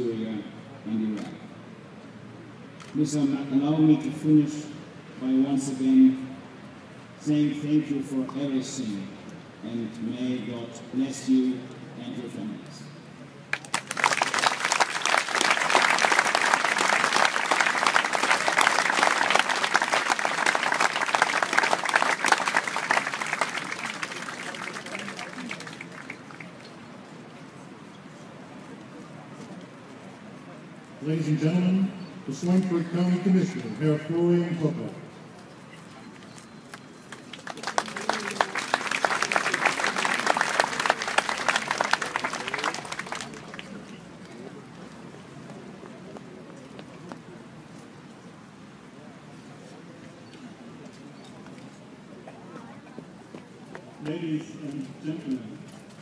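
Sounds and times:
audience applauding: 13.5 - 26.8, 37.1 - 44.0.

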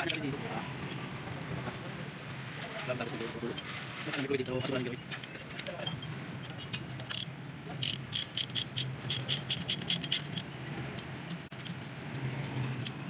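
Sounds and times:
ratchet wrench clicking: 7.0 - 10.5.

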